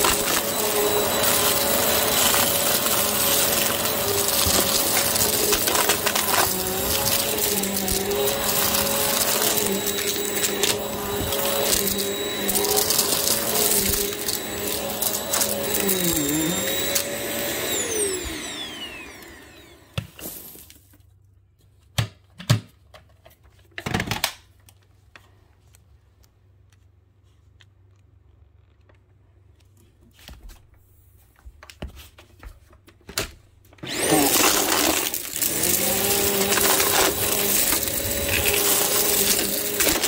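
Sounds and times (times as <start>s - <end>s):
vacuum cleaner on carpet: 0.0s - 20.7s, 33.8s - 40.0s.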